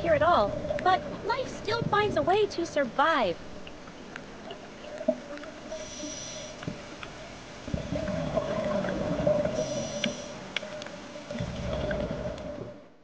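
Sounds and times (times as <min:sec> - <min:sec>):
underwater hum: 0:00.0 - 0:13.0
faint clicks: 0:09.6 - 0:12.5.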